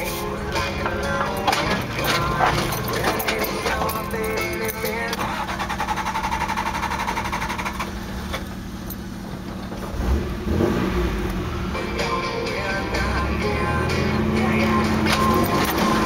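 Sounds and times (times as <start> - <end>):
truck engine running low speed: 0.0 - 16.0.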